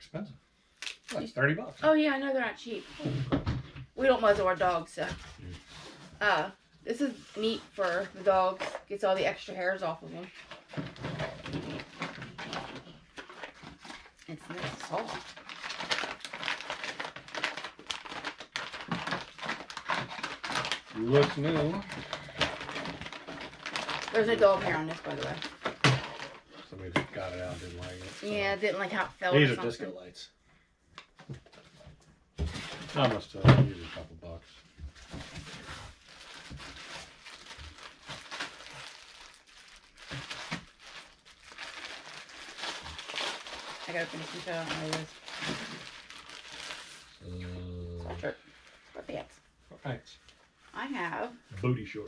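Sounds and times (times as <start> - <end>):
plastic packaging crinkling: 10.3 - 26.6, 35.0 - 47.2.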